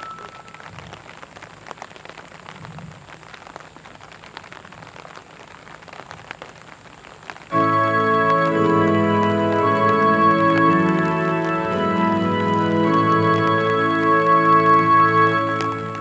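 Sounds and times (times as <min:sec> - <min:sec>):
rain pattering on umbrellas: 0:00.0 - 0:16.0
music over loudspeakers: 0:07.5 - 0:16.0.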